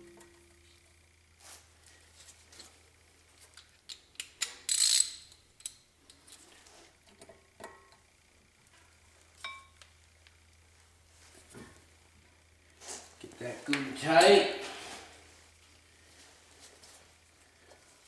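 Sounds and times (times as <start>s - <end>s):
ringing metal clink: 9.4s - 9.8s.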